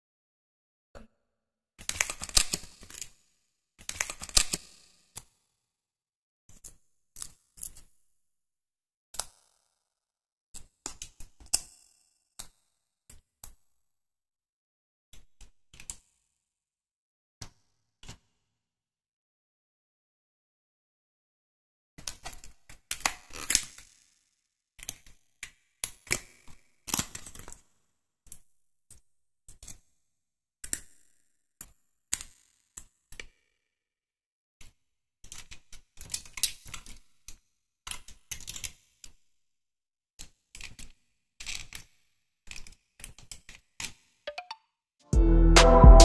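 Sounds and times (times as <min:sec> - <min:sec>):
puzzle pieces clicking and tapping: 0:44.3 - 0:44.6.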